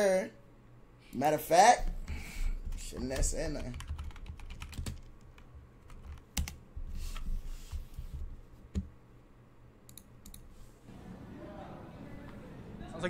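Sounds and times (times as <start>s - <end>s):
computer keyboard typing: 2.6s - 6.6s, 9.9s - 10.5s.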